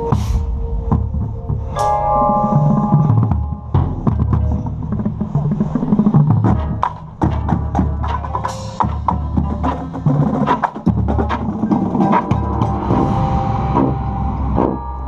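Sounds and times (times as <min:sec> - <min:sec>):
percussion hits: 0:00.0 - 0:15.0
low brass long notes: 0:12.0 - 0:15.0.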